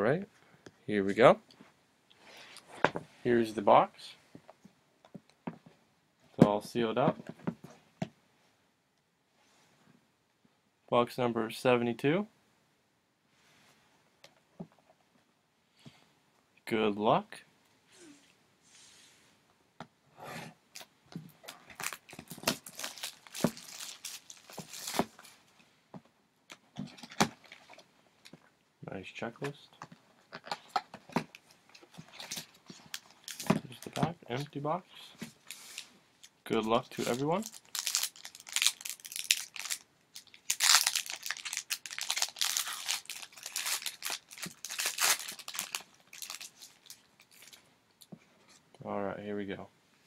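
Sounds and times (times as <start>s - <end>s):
cardboard and wrapper tearing: 20.8s - 25.4s, 30.4s - 34.0s, 36.9s - 47.6s.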